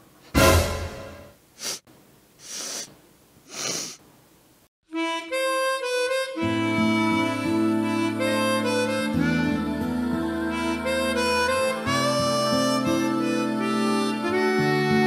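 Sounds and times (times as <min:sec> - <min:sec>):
man sniffing: 0:01.6 - 0:04.0
harmonica music: 0:04.9 - 0:15.0.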